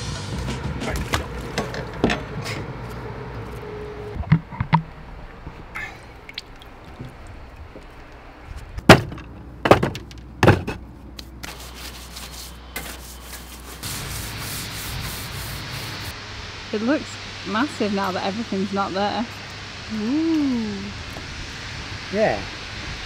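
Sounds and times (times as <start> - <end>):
stiff broom scrubbing: 11.2 - 16.1.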